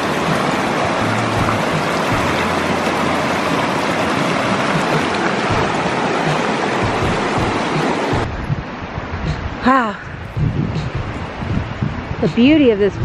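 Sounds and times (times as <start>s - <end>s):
stream rushing over stones: 0.0s - 9.9s.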